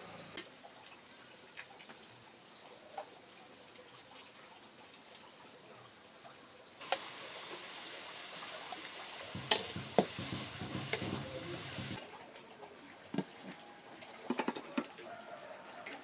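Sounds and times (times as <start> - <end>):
vegetables sizzling in wok: 0.0 - 0.4, 6.8 - 12.0
spatula knocking against pan: 9.3 - 12.0.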